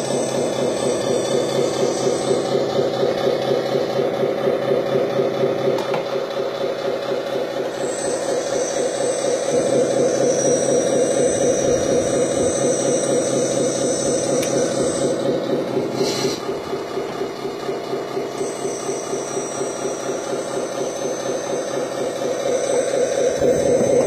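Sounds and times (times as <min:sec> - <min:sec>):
thin high whine: 0:00.0 - 0:04.1, 0:07.7 - 0:16.6, 0:18.2 - 0:24.0
electric pump whining hum: 0:00.0 - 0:24.0.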